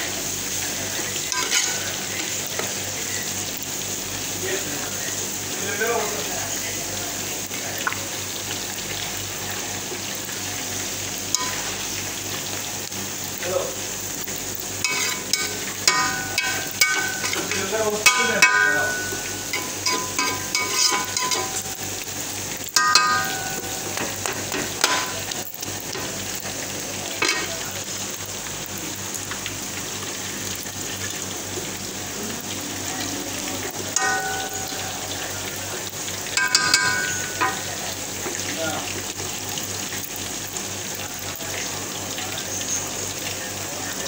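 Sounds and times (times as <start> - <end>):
vegetables sizzling in a frying pan: 0.0 - 44.0
metal spoon scraping a pan: 1.3 - 2.4, 14.8 - 21.9, 36.4 - 37.6.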